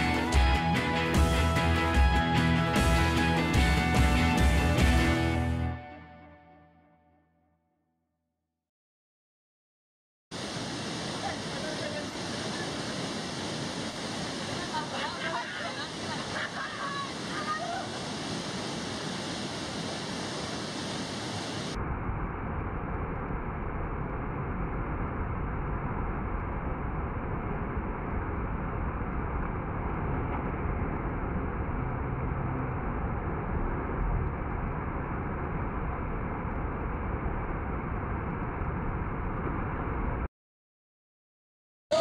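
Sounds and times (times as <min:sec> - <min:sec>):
waterfall pouring into pool: 0:10.4 - 0:38.9.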